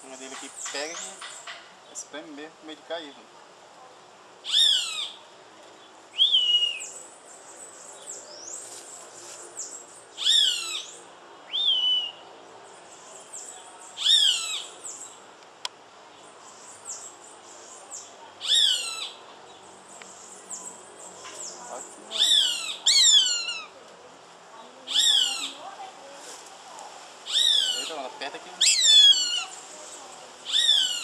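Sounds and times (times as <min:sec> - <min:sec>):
high bird chirps: 0:28.6 - 0:29.6, 0:30.5 - 0:31.0.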